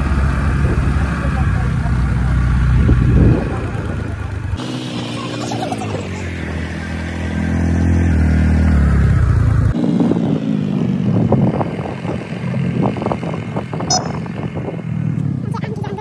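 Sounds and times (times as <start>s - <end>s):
motorcycle engine running: 0.0s - 16.0s
wind buffeting microphone: 2.7s - 4.6s, 9.9s - 15.9s.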